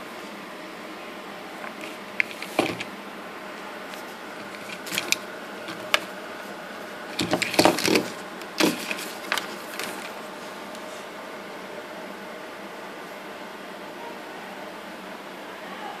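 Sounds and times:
handling clicks and taps: 0:01.6 - 0:02.9, 0:03.9 - 0:06.1.

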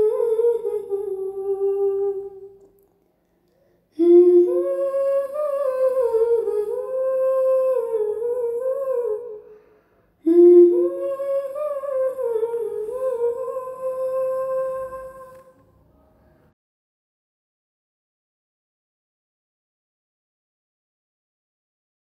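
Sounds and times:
woman humming: 0:04.0 - 0:09.4, 0:10.3 - 0:15.5.

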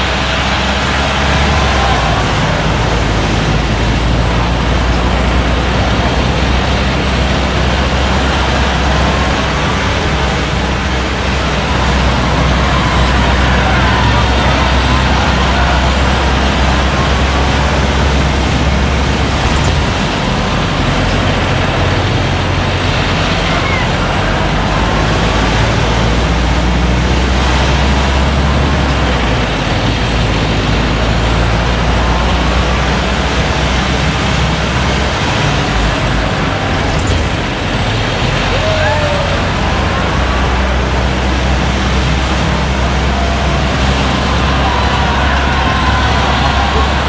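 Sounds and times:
loud steady rushing noise: 0:00.0 - 0:47.0
truck diesel engine running: 0:00.0 - 0:47.0.

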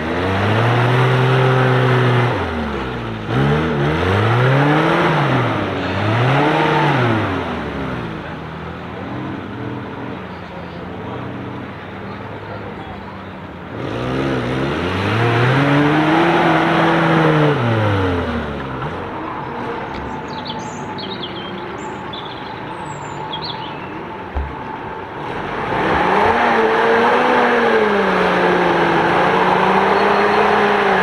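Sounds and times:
jeep engine revving under load: 0:00.0 - 0:10.2, 0:13.6 - 0:31.0
off-road vehicle engine revving: 0:00.0 - 0:31.0
birds chirping: 0:10.2 - 0:13.5, 0:19.2 - 0:25.1, 0:29.8 - 0:31.0
thump: 0:24.3 - 0:24.7.

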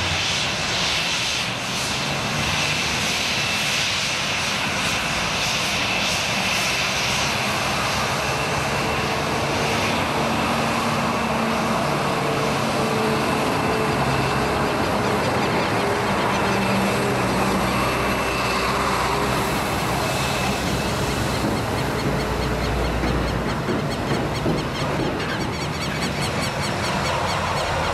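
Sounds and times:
jet engine whine: 0:00.0 - 0:27.9.

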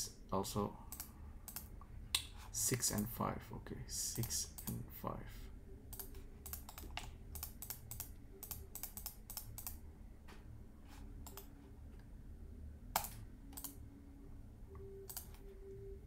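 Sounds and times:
keyboard and mouse clicking: 0:00.9 - 0:02.3, 0:04.2 - 0:04.8, 0:05.9 - 0:09.8, 0:11.2 - 0:11.5, 0:12.9 - 0:13.8, 0:14.8 - 0:15.4.

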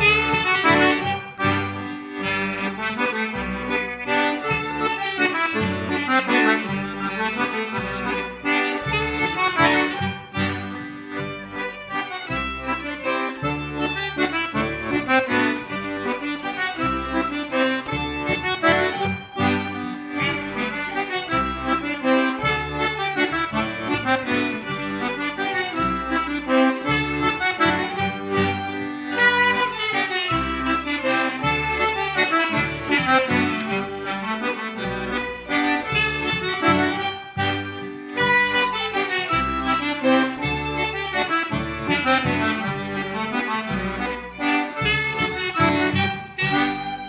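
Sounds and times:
button accordion: 0:00.0 - 0:47.0
folk dance tune by small ensemble: 0:00.0 - 0:47.0
low bass notes: 0:00.0 - 0:47.0.

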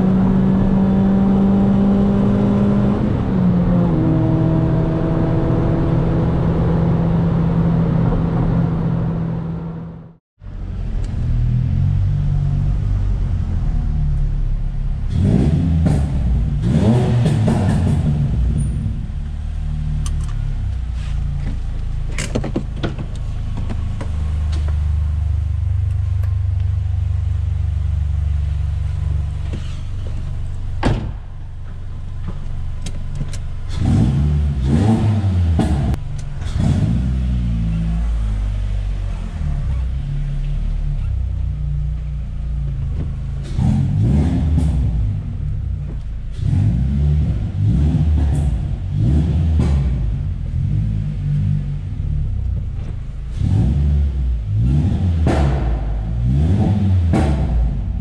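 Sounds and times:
engine revving: 0:15.0 - 0:20.4, 0:33.6 - 0:41.3, 0:43.0 - 0:52.4, 0:53.3 - 0:58.0.

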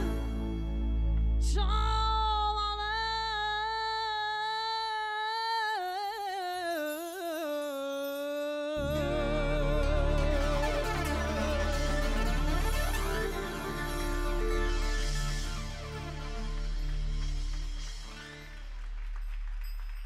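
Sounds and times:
bass and percussion: 0:00.0 - 0:03.4, 0:08.8 - 0:20.0
woman singing into a microphone: 0:01.4 - 0:11.8.

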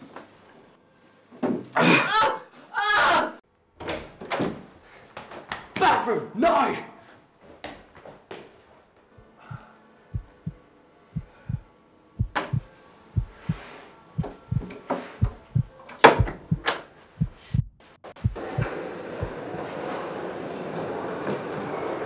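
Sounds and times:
heartbeat thuds: 0:09.2 - 0:10.6, 0:11.2 - 0:11.6, 0:12.2 - 0:13.6, 0:14.2 - 0:19.4.

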